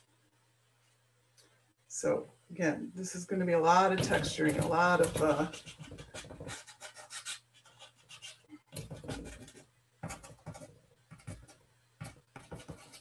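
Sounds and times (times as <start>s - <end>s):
pastel scratching on paper: 5.0s - 13.0s.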